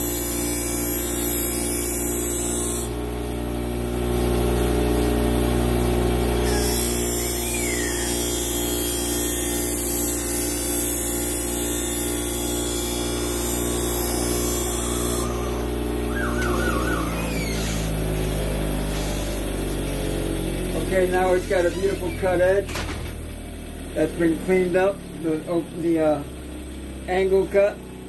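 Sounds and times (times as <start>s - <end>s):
bench grinder motor humming: 0.0s - 22.6s
blade grinding hiss: 6.4s - 16.0s, 17.1s - 20.3s.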